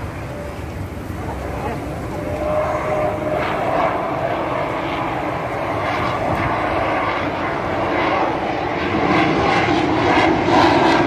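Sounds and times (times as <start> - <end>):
military aircraft flying overhead: 0.0 - 11.0.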